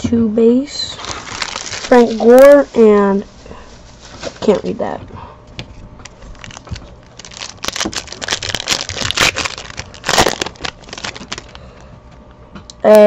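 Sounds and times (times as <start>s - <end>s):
foil wrapper tearing and crinkling: 0.8s - 3.2s, 6.0s - 11.7s.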